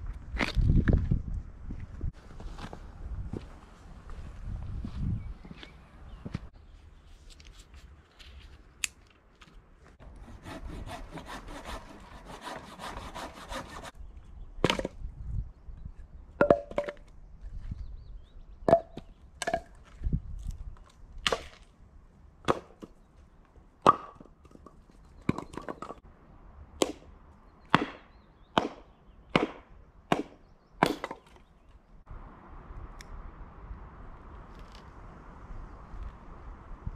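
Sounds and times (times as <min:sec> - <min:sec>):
rustling and scraping: 0:01.8 - 0:14.0
machete chopping wood: 0:21.2 - 0:21.6, 0:22.4 - 0:22.9, 0:27.7 - 0:31.4.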